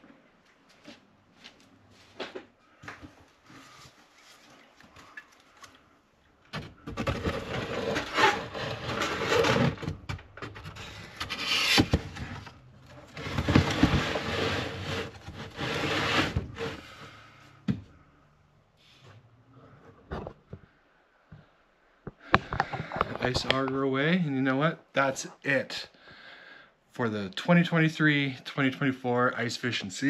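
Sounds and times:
plastic crate scraping on wood: 7.0s - 16.9s.

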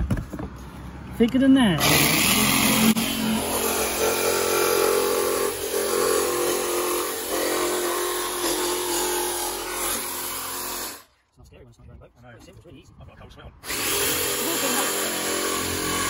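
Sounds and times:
jigsaw sawing through deck: 1.8s - 11.1s, 13.6s - 16.0s.

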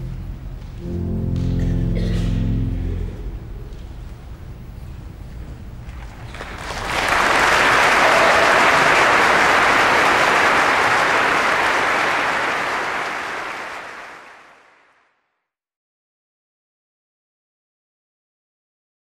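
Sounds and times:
low musical chord: 0.0s - 4.5s
audience applause: 6.1s - 15.0s.

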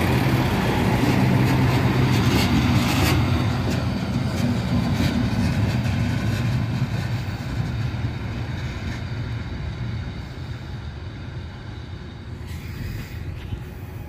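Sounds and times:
diesel train engine rumble: 0.0s - 14.0s.

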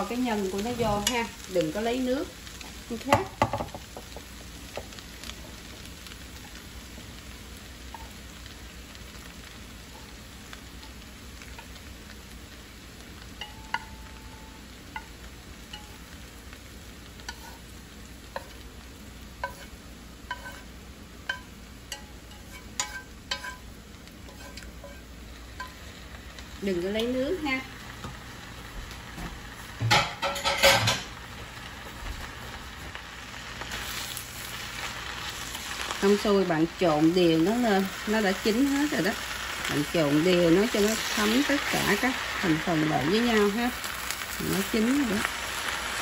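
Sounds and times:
stir-fry sizzling in a pan: 0.0s - 46.0s
wooden utensil scraping and tapping pan: 17.2s - 17.6s, 19.4s - 19.7s, 20.3s - 20.7s, 21.3s - 23.6s, 24.2s - 25.0s.

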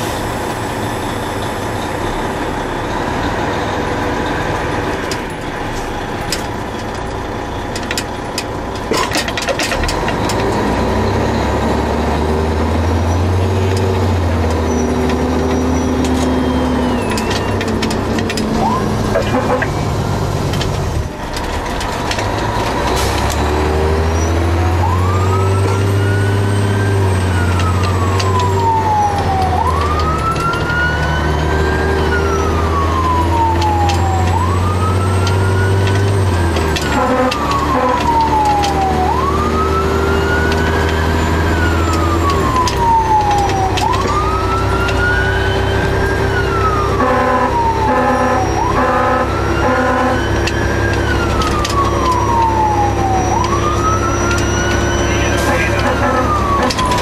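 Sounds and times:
fire engine siren wailing: 0.0s - 57.0s
truck engine drone: 0.0s - 57.0s
pulsing horn bursts: 18.5s - 20.0s, 36.7s - 39.2s, 46.6s - 51.4s, 52.5s - 57.0s.

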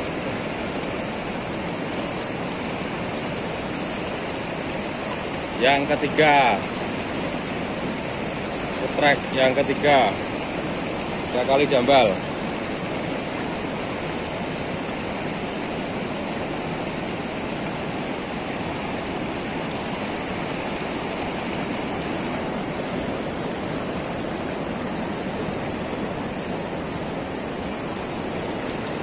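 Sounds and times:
river water pouring over weir: 0.0s - 29.0s.

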